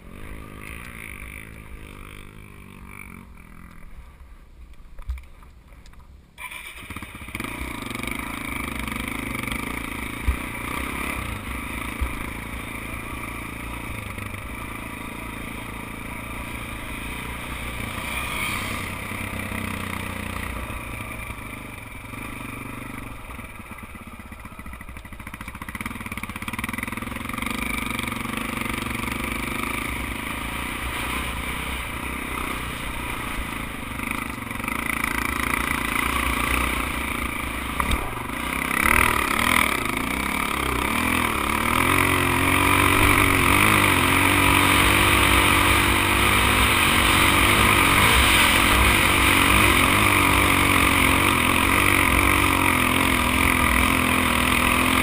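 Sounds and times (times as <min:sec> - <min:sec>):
dirt bike engine: 0:00.0 - 0:55.0.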